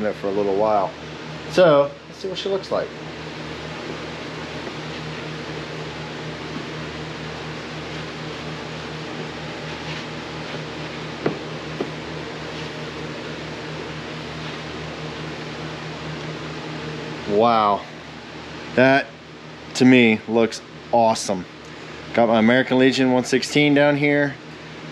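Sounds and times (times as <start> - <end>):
fan motor humming: 0.0 - 24.9
light knocks: 11.2 - 12.0.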